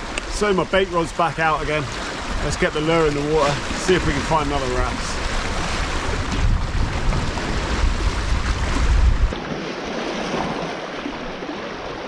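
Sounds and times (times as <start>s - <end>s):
wind buffeting microphone: 0.0s - 9.4s
waves splashing against rocks: 0.0s - 12.0s.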